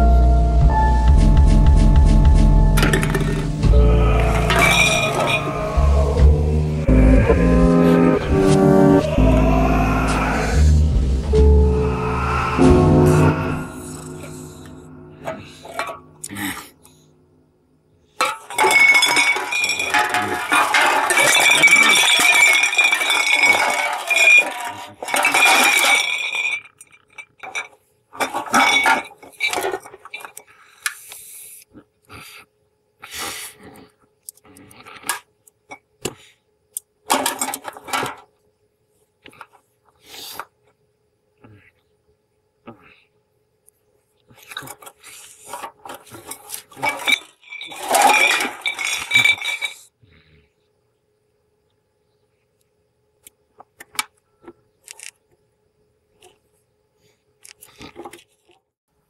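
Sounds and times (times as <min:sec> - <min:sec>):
bottles and cans clinking on cobblestones: 0:02.8 - 0:05.8, 0:15.2 - 0:16.3, 0:18.2 - 0:30.4, 0:45.6 - 0:50.0
glass bottle ringing: 0:04.2 - 0:05.7.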